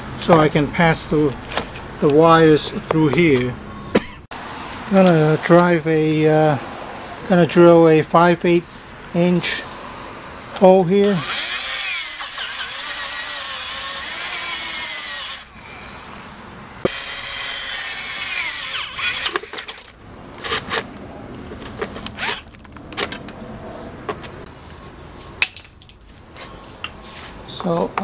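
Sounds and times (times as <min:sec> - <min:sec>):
power drill boring through plastic: 0:11.0 - 0:15.5, 0:16.9 - 0:19.9
sharp clicks and knocks: 0:19.2 - 0:23.4.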